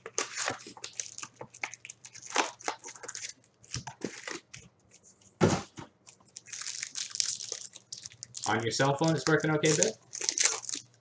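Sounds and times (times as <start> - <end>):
card pack wrappers crinkling: 0.0 - 4.6, 6.1 - 11.0.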